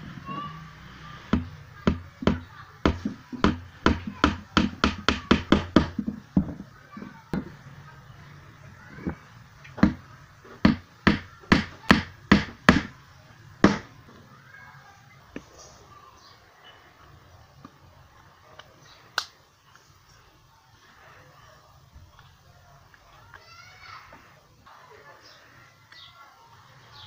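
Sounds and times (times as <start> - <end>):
hammer striking strip on wood: 10.6 - 12.9.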